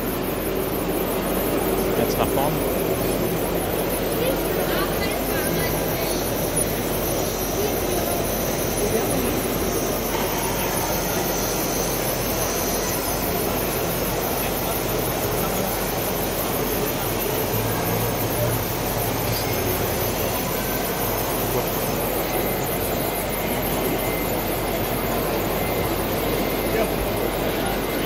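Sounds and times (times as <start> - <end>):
murmur of crowd voices: 0.0 - 28.0.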